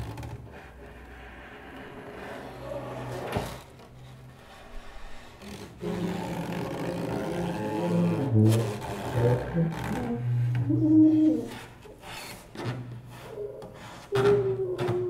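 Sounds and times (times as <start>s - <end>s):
bowed double bass: 5.2s - 11.8s
tuba low notes: 5.8s - 11.8s.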